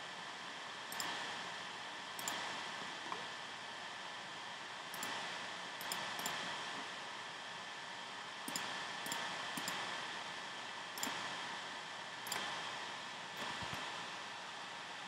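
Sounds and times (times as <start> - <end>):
steady hiss: 0.0 - 15.0
computer mouse clicks: 0.9 - 1.2, 2.2 - 2.5, 4.9 - 5.2, 5.8 - 6.5, 8.5 - 9.9, 11.0 - 11.2, 12.2 - 12.6.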